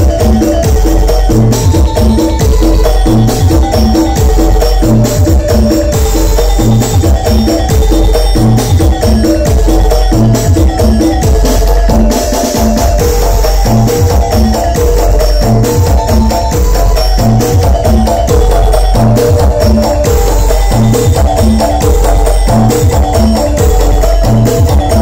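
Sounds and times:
deep heavy bass: 0:00.0 - 0:25.0
loud dance music: 0:00.0 - 0:25.0.

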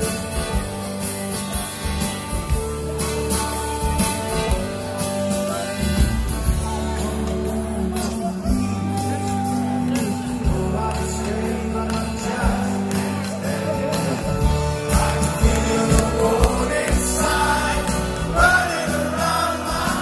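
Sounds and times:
live rock band: 0:00.0 - 0:20.0
person singing: 0:05.4 - 0:20.0.

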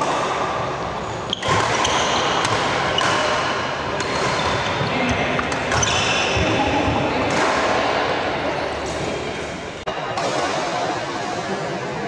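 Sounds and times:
shoes squeaking on floor: 0:01.0 - 0:03.4, 0:04.0 - 0:06.6
racket hitting shuttlecock: 0:01.2 - 0:07.8, 0:10.1 - 0:10.8.

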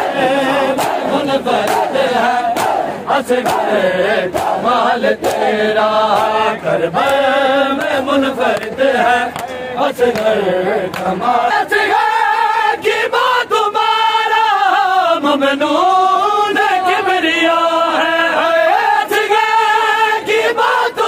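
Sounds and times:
men chanting a lament: 0:00.0 - 0:21.0
sharp slaps: 0:00.8 - 0:06.4, 0:07.0 - 0:10.3.

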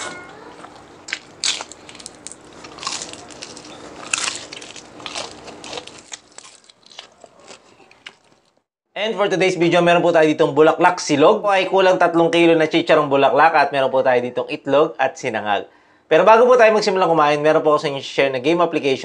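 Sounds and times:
crunching and chewing: 0:00.5 - 0:08.7.

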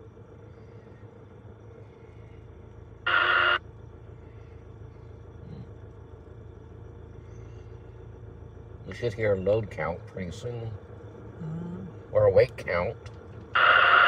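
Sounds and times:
diesel engines humming: 0:00.0 - 0:14.0
two-way radio burst: 0:13.6 - 0:14.0.

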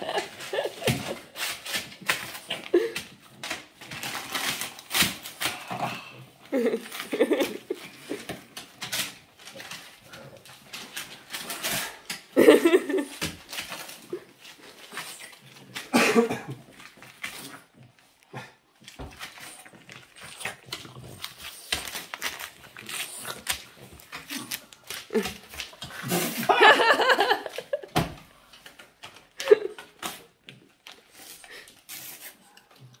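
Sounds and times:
paper crinkling and rustling: 0:00.0 - 0:05.7, 0:06.5 - 0:18.0, 0:18.8 - 0:32.6
paper rustling and ripping: 0:00.1 - 0:05.8, 0:18.9 - 0:27.7
dog growling: 0:05.4 - 0:06.7, 0:19.6 - 0:21.7.

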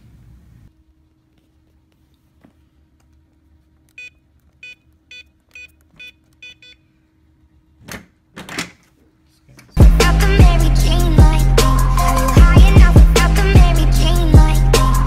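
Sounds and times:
keypad beeps: 0:04.0 - 0:06.8.

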